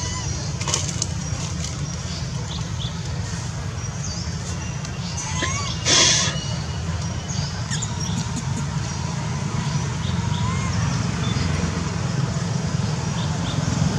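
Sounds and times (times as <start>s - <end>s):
faint squeaking calls: 0.0s - 0.5s, 4.4s - 11.4s.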